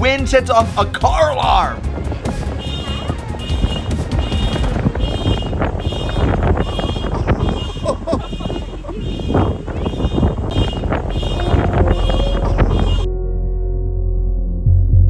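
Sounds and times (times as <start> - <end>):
wind rumble on microphone: 1.4 - 13.1
car alarm tones: 2.6 - 13.1.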